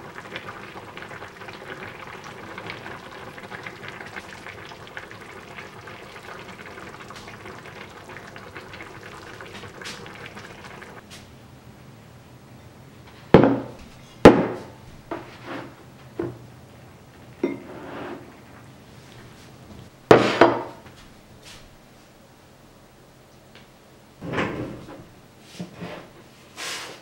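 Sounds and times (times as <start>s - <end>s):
stew bubbling in a pot: 0.0s - 11.0s
bowl and pot set down on table: 17.4s - 17.7s.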